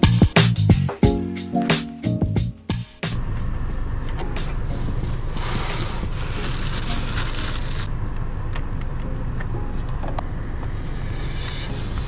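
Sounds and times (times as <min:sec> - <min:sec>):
steady low rumble: 0:02.4 - 0:06.8.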